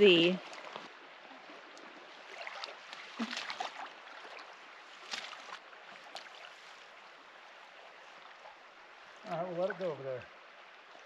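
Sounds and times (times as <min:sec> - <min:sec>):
river water running: 0:00.0 - 0:11.0
small splashes and knocks: 0:00.4 - 0:07.1.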